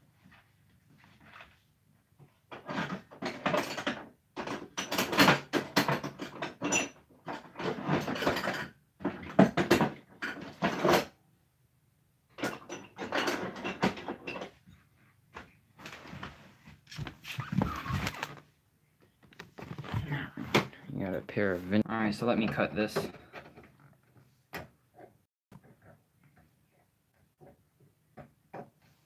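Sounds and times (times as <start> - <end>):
objects clattering and knocking: 1.0 - 11.2, 12.3 - 20.8, 22.4 - 26.6.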